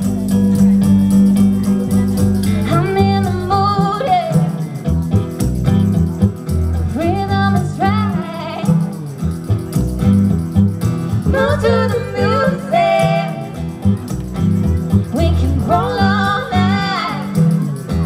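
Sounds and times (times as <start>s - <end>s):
slide guitar: 0.0s - 18.0s
strummed acoustic guitar: 0.0s - 18.0s
tambourine: 0.0s - 18.0s
upright bass: 0.0s - 18.0s
women singing: 2.6s - 4.6s, 6.9s - 8.8s, 11.2s - 13.8s, 15.1s - 17.5s.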